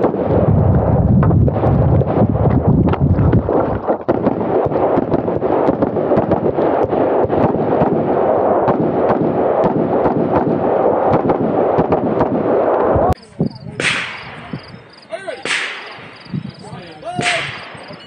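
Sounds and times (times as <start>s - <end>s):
wind rushing on microphone: 0.0s - 18.0s
rifle shots: 4.0s - 12.8s, 13.8s - 14.8s, 15.4s - 16.4s.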